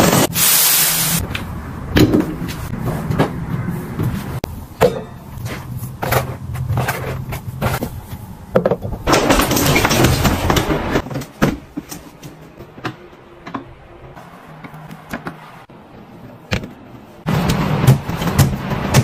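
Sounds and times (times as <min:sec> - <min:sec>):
household items knocking and rustling: 0:04.8 - 0:13.8.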